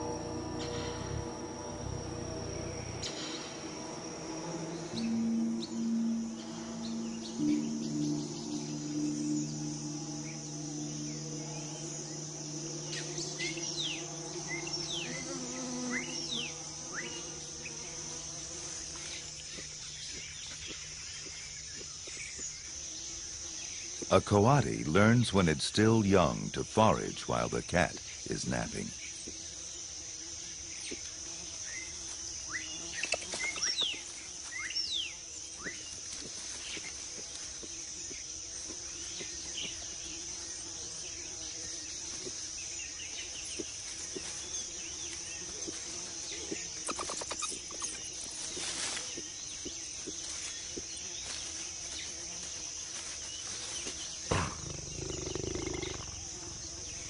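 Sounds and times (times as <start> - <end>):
high-pitched insect drone: 0.0 - 57.0
low sound: 2.7 - 13.6.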